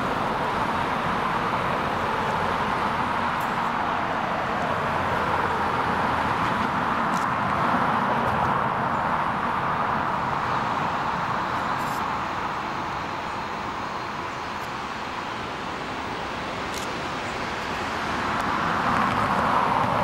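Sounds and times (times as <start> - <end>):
jet engines idling: 0.0 - 20.0.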